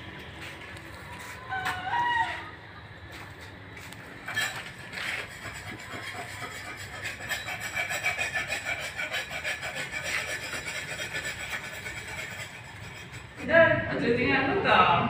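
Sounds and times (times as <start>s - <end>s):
rasping strokes on wood: 4.2s - 13.6s.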